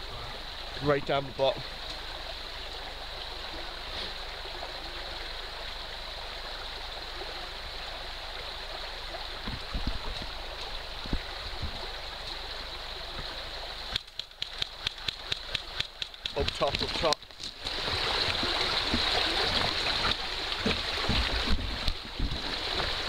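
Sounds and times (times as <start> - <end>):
stream rushing and gurgling: 0.0 - 23.0
dull low knocks: 9.4 - 12.0, 18.4 - 23.0
sharp clicks: 13.9 - 17.2.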